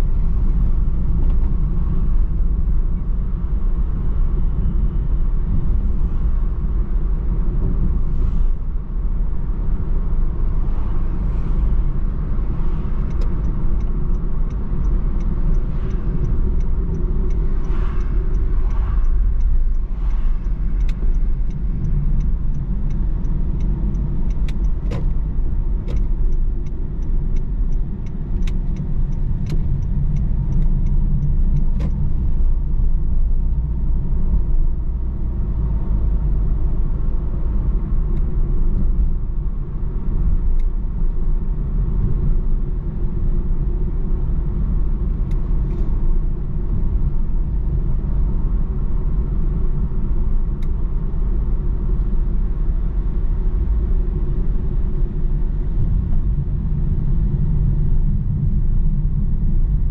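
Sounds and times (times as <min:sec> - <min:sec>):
car engine and road rumble: 0:00.0 - 0:59.9.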